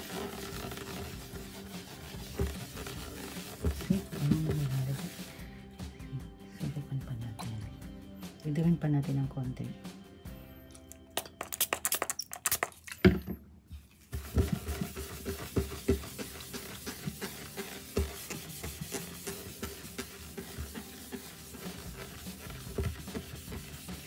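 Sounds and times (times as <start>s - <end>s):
cloth rubbing on table: 0.0s - 5.4s, 14.0s - 24.0s.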